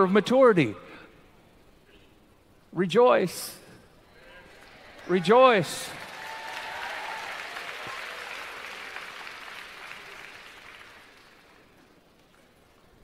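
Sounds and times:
audience applauding: 4.4 - 12.9.

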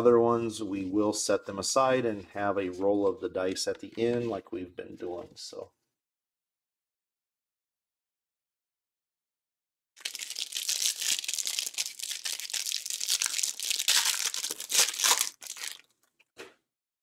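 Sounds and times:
plastic wrapper tearing and crinkling: 10.0 - 16.1.

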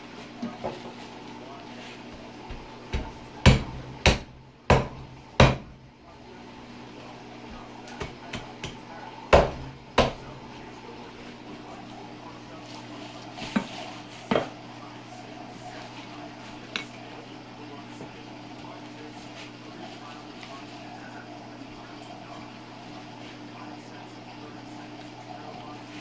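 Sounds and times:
cleaver chopping on cutting board: 2.5 - 5.7, 8.0 - 10.2.

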